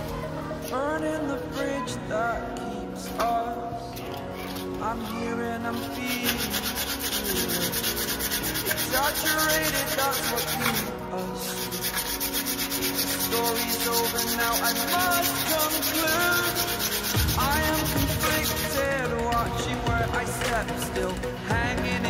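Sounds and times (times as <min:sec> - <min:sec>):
sandpaper sanding metal panel: 0:05.6 - 0:19.2.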